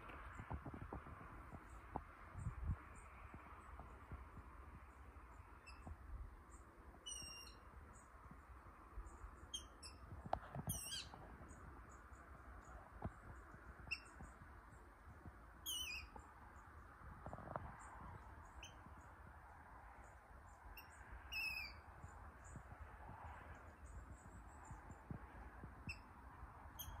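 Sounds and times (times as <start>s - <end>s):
bird squeaky calls: 5.6s - 5.9s, 7.0s - 7.6s, 9.5s - 10.0s, 10.6s - 11.2s, 13.9s - 14.2s, 15.6s - 16.2s, 20.8s - 21.8s, 26.8s - 27.0s.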